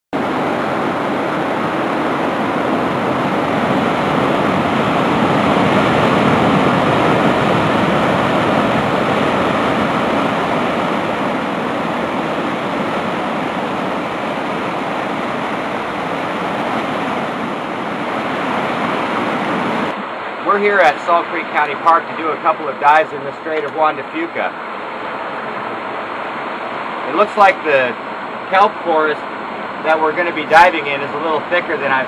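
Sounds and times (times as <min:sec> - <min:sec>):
surf crashing over rocks: 0:00.2 - 0:24.5.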